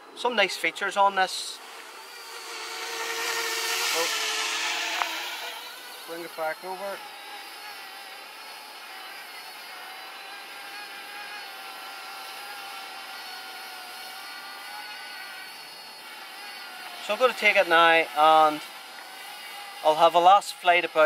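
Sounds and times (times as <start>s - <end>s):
drone propellers whining: 1.2s - 12.5s.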